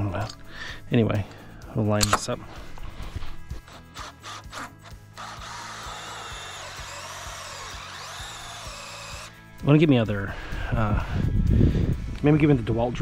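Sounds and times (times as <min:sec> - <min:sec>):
drill cutting with hole saw: 0:03.7 - 0:09.3.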